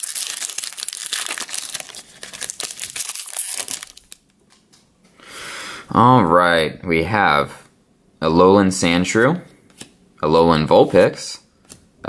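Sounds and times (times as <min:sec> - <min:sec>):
foil wrapper crinkling: 0:00.0 - 0:04.3.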